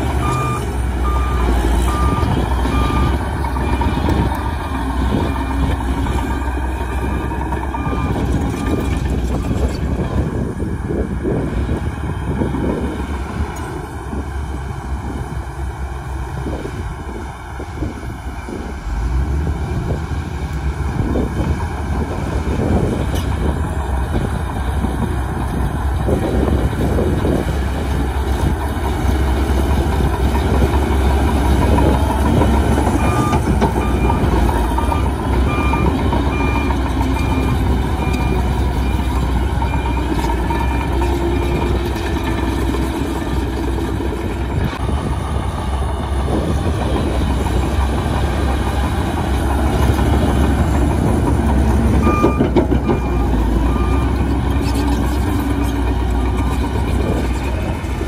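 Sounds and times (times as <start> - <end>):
bulldozer diesel engine running: 0.0 - 58.0
reversing alarm beeping: 0.2 - 4.3, 5.1 - 9.7, 33.0 - 41.7, 44.6 - 45.5, 51.9 - 54.2.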